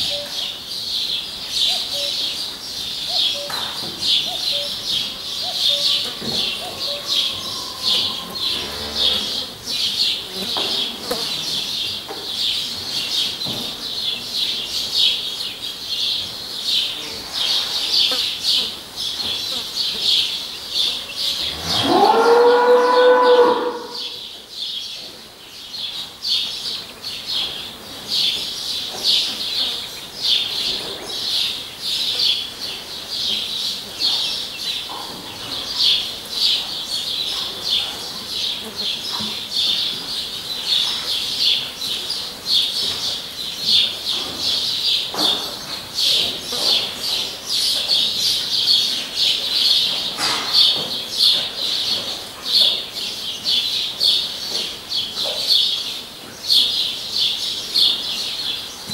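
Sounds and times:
cow mooing: 6.7s - 9.5s, 21.4s - 24.1s.

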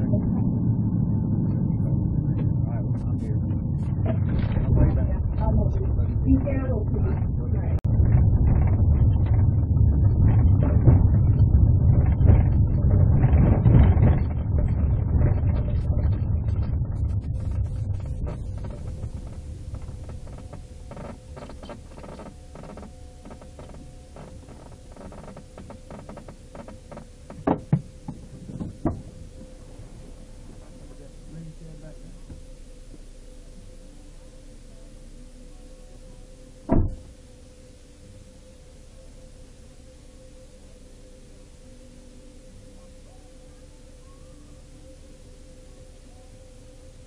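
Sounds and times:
car tyres rumbling on dirt: 0.0s - 31.4s
faint steady hum: 0.0s - 47.0s.

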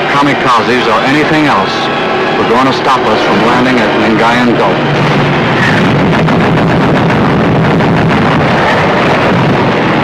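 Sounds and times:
anti-aircraft guns firing rapidly: 4.9s - 10.0s.

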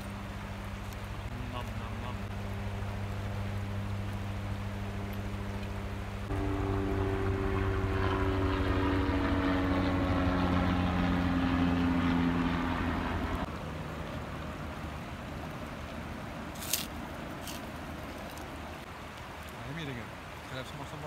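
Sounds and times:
helicopter rotor drone: 0.0s - 15.4s.

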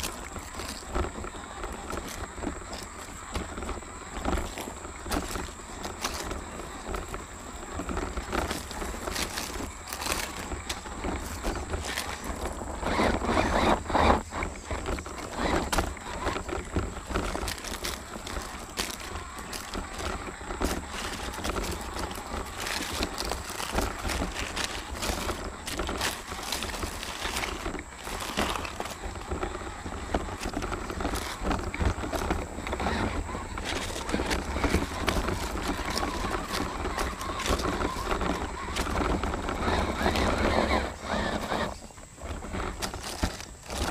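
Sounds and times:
high motor whine: 0.0s - 43.9s
low rumble of vibration: 0.0s - 43.9s
tyres crunching on stones: 0.0s - 43.9s.

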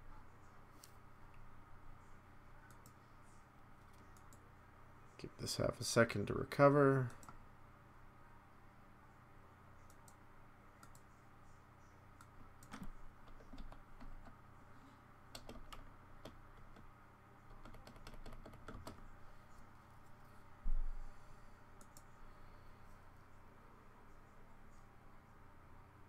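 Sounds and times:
steady low hum: 0.0s - 26.0s
mouse clicks: 3.8s - 4.4s, 10.8s - 11.1s
keyboard keystrokes: 12.2s - 14.4s, 15.3s - 16.9s, 17.5s - 19.0s.

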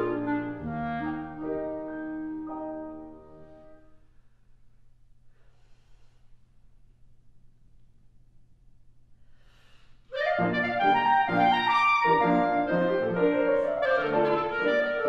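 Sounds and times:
clarinet: 0.0s - 3.9s, 10.1s - 15.0s
piano: 0.0s - 4.2s, 10.1s - 15.0s
faint room hum: 3.0s - 10.2s.

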